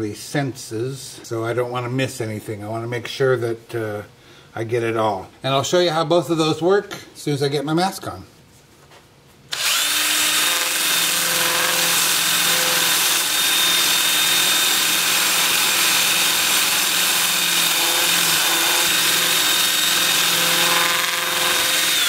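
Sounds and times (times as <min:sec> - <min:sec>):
drill motor whine: 0:09.5 - 0:22.0
sanding disc rasping on wood: 0:09.7 - 0:22.0.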